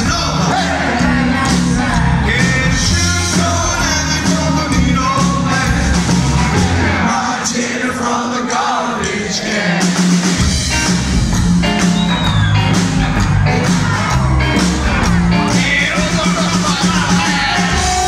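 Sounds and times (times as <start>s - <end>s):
upright double bass: 0.0s - 7.1s, 10.4s - 18.0s
drums: 0.0s - 18.0s.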